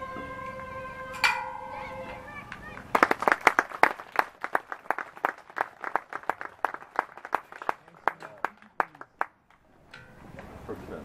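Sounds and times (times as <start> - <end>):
small crowd applauding: 2.1 - 9.6.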